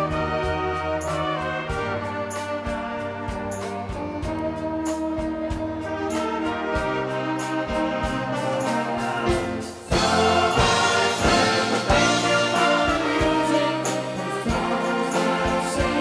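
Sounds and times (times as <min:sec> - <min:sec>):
steady drumbeat: 0:00.0 - 0:16.0
wind band playing: 0:00.0 - 0:16.0.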